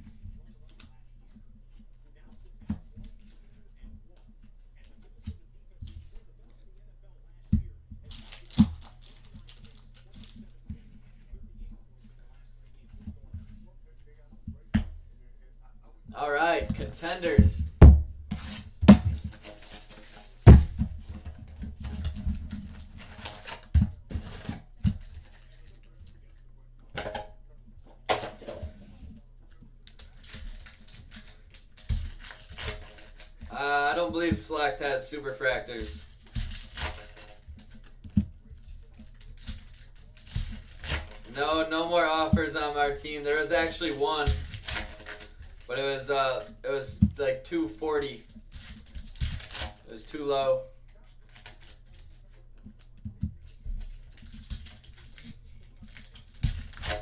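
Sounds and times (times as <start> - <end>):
card wrappers crinkling: 8.0 - 11.0, 18.4 - 26.4, 29.5 - 57.0.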